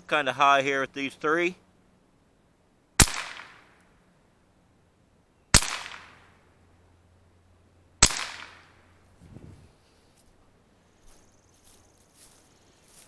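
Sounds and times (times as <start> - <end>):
rifle shots with echo: 3.0 - 3.8, 5.5 - 6.4, 8.0 - 8.8.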